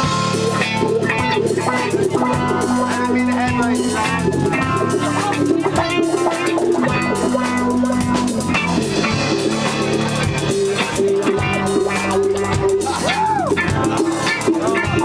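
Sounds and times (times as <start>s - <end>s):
guitar note bending: 0.0s - 15.0s
live rock band playing: 0.0s - 15.0s.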